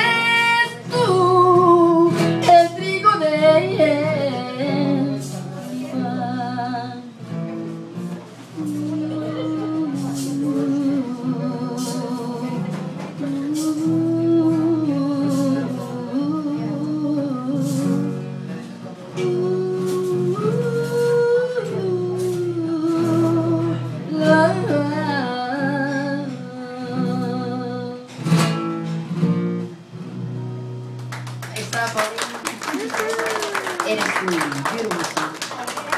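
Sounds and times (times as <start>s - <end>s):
woman singing: 0.0s - 7.2s, 8.6s - 18.4s, 19.1s - 28.2s
guitar accompaniment: 0.0s - 35.9s.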